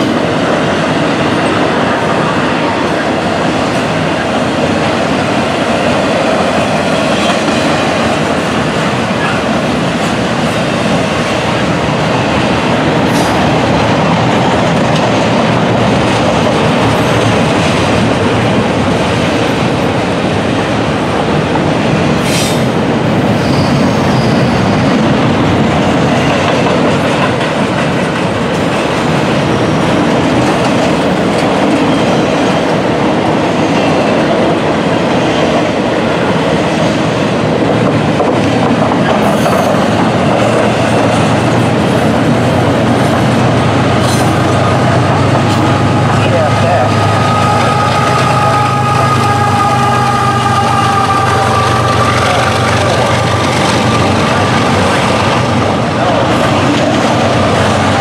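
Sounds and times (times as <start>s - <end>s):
freight train wheels rumbling: 0.0s - 58.0s
high wheel squeal: 23.2s - 24.9s.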